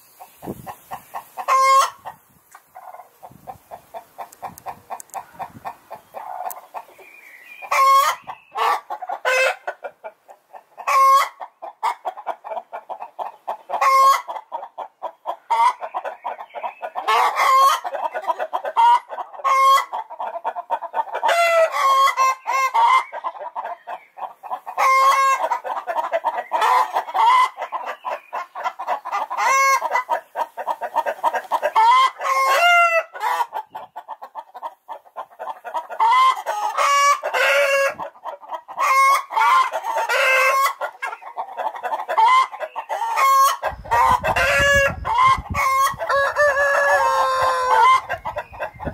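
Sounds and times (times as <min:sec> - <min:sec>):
hens clucking: 0:00.0 - 0:48.9
hens squawking: 0:00.4 - 0:02.2, 0:07.6 - 0:48.9.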